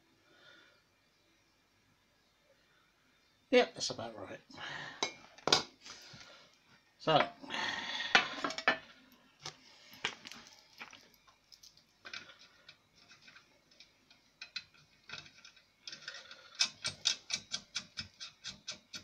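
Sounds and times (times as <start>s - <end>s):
small metallic clicks: 10.2s - 19.0s.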